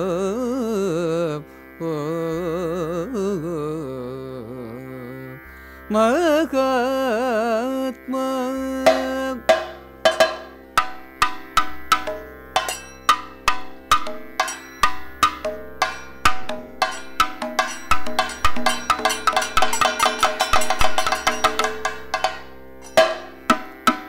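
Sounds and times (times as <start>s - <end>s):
steady drone: 8.8s - 24.0s
struck percussion notes: 8.8s - 24.0s.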